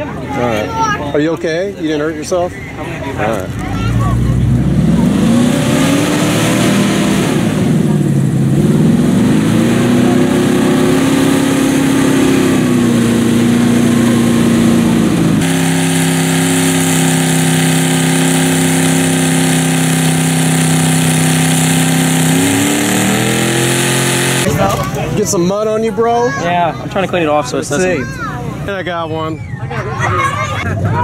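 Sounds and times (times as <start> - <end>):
truck engine high revving: 3.4 - 24.8.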